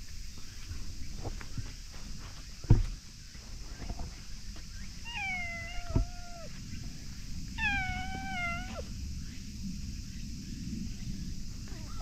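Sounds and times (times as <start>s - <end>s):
thump: 2.6s - 3.0s
cat meowing: 5.1s - 6.5s, 7.6s - 8.9s.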